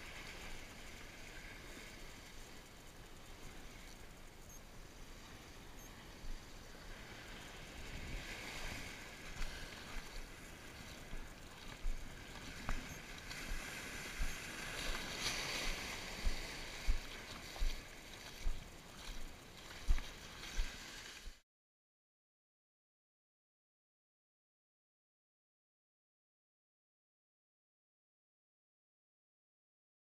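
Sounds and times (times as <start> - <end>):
ocean surf washing: 0.0 - 21.4.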